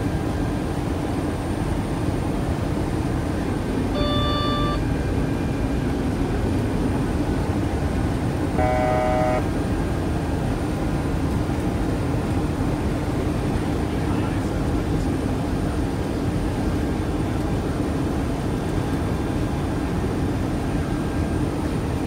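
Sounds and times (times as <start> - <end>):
aircraft engine and airflow rumble: 0.0 - 22.0
electronic cockpit tones: 3.9 - 4.9, 8.6 - 9.5.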